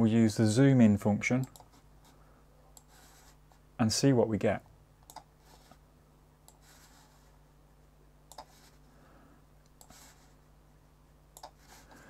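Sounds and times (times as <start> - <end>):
low steady hum: 0.0 - 12.0
faint computer mouse clicks: 1.4 - 1.7, 2.8 - 3.0, 5.0 - 5.3, 8.3 - 8.5, 11.4 - 11.6.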